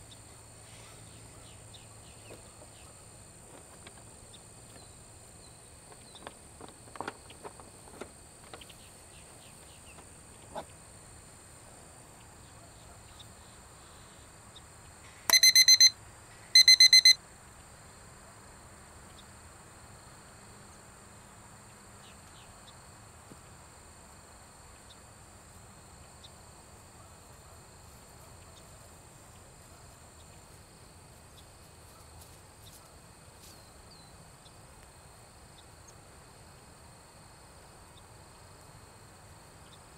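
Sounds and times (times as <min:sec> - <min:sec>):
short electronic beeps: 0:15.3 - 0:16.0, 0:16.6 - 0:17.2.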